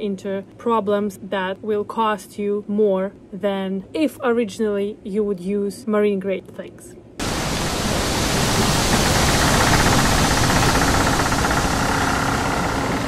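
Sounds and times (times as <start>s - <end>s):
loud rushing hiss: 7.2s - 13.0s.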